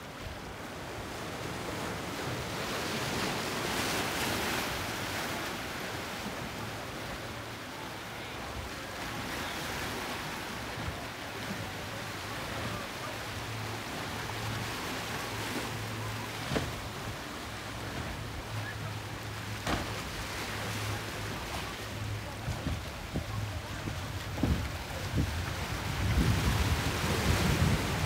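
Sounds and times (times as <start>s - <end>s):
boat engines droning: 0.0s - 28.0s
choppy water: 0.0s - 28.0s
wind noise: 24.3s - 28.0s.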